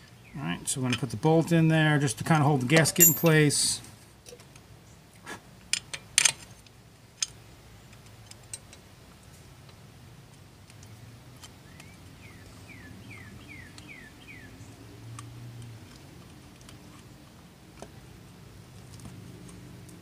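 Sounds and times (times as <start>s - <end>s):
metallic clicks and knocks: 2.7s - 3.4s
bird chirping: 11.6s - 14.7s.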